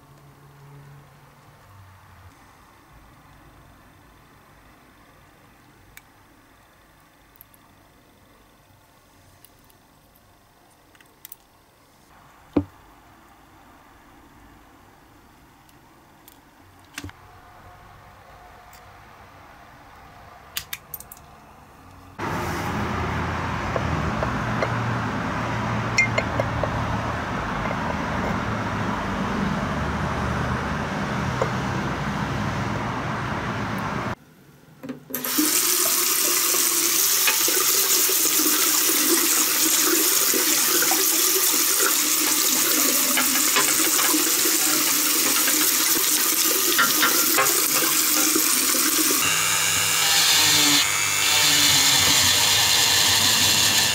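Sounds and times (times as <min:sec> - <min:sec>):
tap water running into bathtub: 0:35.1 - 0:49.2.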